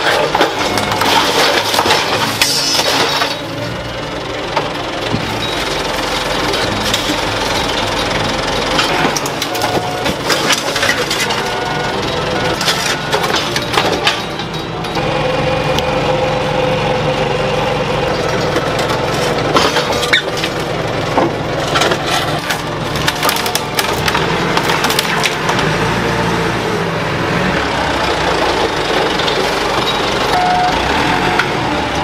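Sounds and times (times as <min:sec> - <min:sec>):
scrap car metal clanking: 0:00.0 - 0:03.7, 0:06.4 - 0:11.8, 0:12.4 - 0:15.0, 0:18.2 - 0:25.6
forklift engine running: 0:00.0 - 0:32.0.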